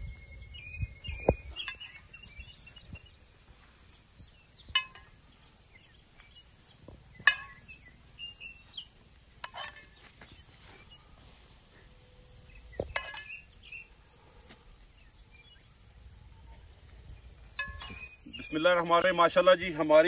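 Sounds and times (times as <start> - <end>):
small birds chirping: 0.0 - 20.0
sharp clinks: 4.7 - 5.2.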